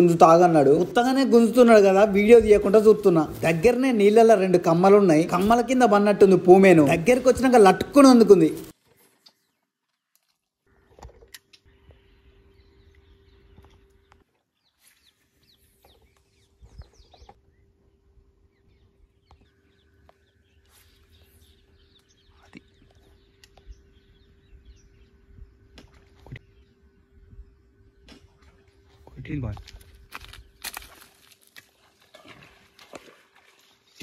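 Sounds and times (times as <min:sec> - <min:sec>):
birds chirping: 0:00.0 - 0:34.0
steady low hum: 0:10.7 - 0:14.2, 0:15.1 - 0:31.2.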